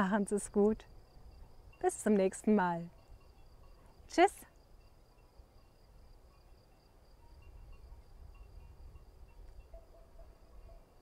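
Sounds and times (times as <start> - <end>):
insects chirring: 0.0 - 11.0
wind rumble on microphone: 7.3 - 10.7.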